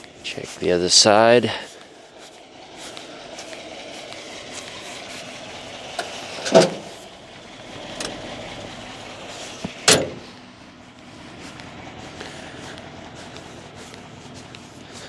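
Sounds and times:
pickup truck engine idling: 0.0s - 15.0s
car door clunk: 6.0s - 6.9s, 9.6s - 10.3s
car door slamming: 6.4s - 6.9s, 9.7s - 10.3s.

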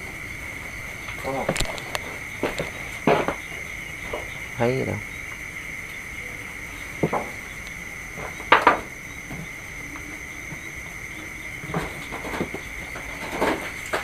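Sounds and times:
night insects droning: 0.0s - 14.0s
clattering knocks: 1.4s - 4.4s, 7.0s - 9.6s, 10.5s - 14.0s.

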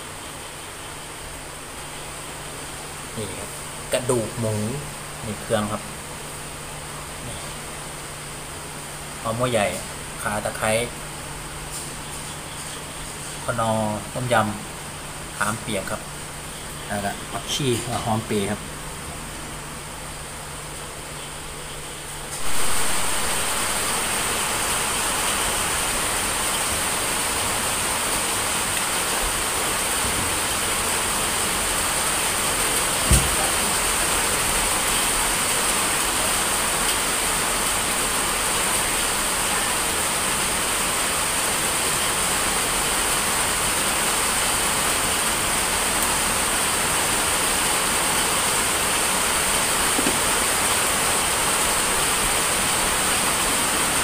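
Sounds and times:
heavy rain falling: 0.0s - 54.0s
knock: 33.1s - 33.4s, 50.0s - 50.2s.

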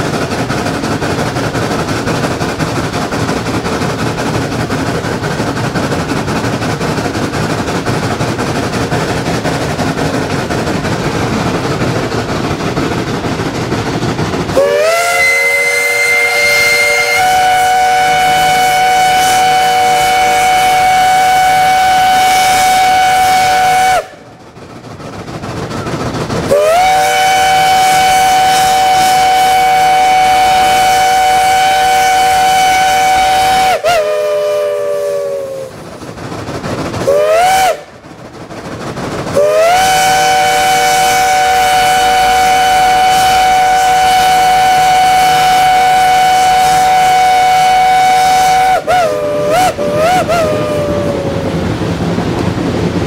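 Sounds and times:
steam locomotive whistle blasts: 14.5s - 24.3s, 26.5s - 35.8s, 37.0s - 38.0s, 39.3s - 51.4s.

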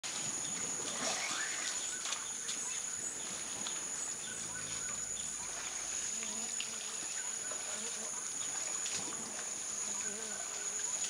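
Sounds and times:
high-pitched insect chorus: 0.1s - 11.0s
birds calling: 0.4s - 6.5s.

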